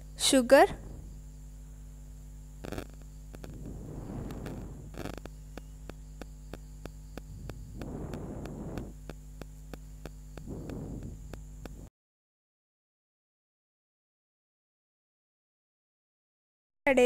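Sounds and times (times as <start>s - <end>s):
electrical mains hum: 0.0s - 11.9s
faint ticking: 4.2s - 11.9s.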